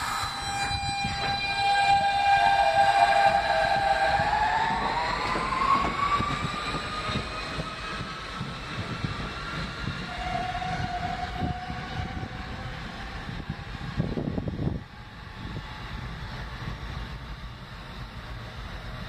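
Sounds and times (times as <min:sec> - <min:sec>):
steady high tone: 0:00.0 - 0:14.8
train wheels rumbling on rails: 0:00.0 - 0:19.0.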